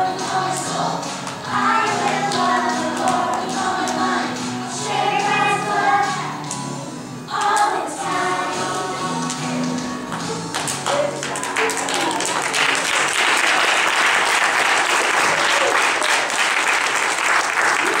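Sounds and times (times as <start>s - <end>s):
music: 0.0s - 18.0s
audience clapping: 9.2s - 18.0s.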